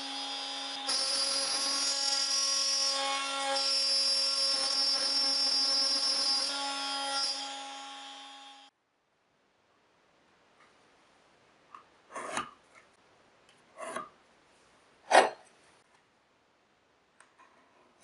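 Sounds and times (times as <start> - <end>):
router whining while cutting: 0.0 - 8.7.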